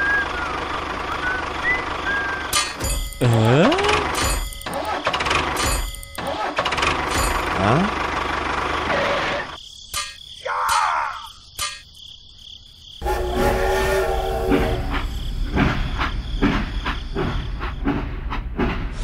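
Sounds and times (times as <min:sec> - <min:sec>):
regular clicking: 0:02.6 - 0:07.6.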